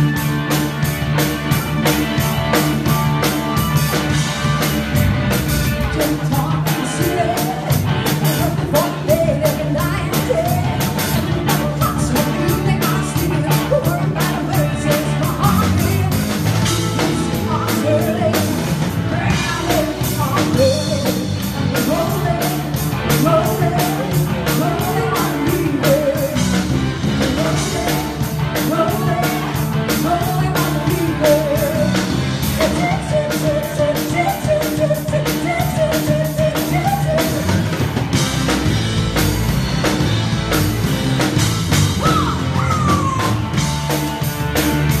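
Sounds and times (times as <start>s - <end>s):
rock band playing: 0.0s - 45.0s
woman singing: 5.8s - 37.8s, 42.0s - 43.4s.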